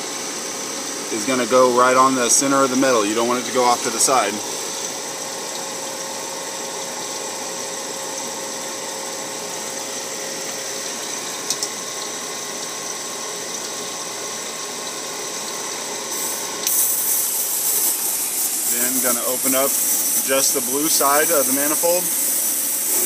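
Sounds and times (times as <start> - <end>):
machine humming: 0.0 - 23.0.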